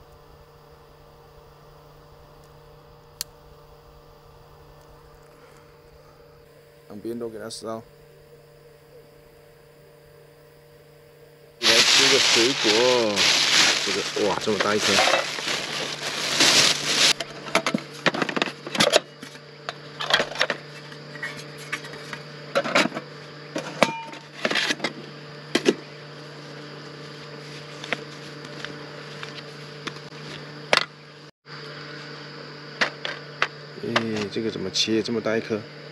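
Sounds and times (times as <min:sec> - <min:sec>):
steady hum: 0:00.0 - 0:35.9
plastic bag crinkling: 0:11.6 - 0:17.2.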